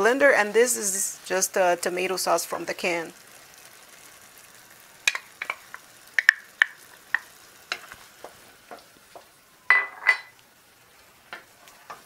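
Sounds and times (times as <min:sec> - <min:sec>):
wooden spoon tapping and scraping: 0:05.1 - 0:10.3.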